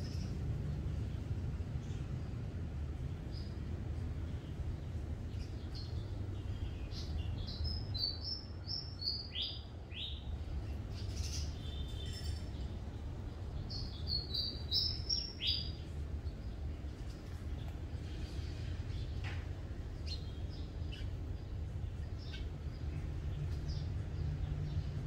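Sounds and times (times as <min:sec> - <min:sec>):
small bird singing: 0:00.0 - 0:00.4, 0:04.3 - 0:16.7, 0:19.8 - 0:25.0.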